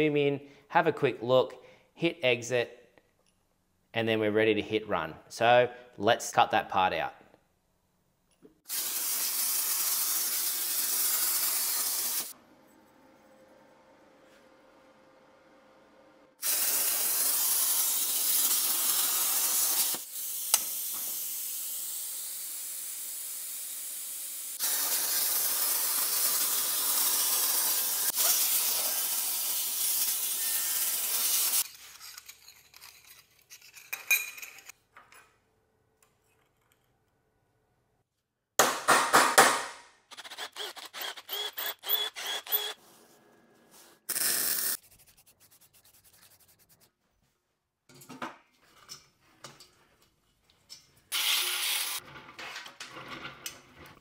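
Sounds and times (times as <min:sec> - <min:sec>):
plasma cutter torch hissing: 0:08.7 - 0:12.3, 0:16.4 - 0:31.6
spray can hiss: 0:08.7 - 0:12.3, 0:16.4 - 0:31.7, 0:44.1 - 0:44.8.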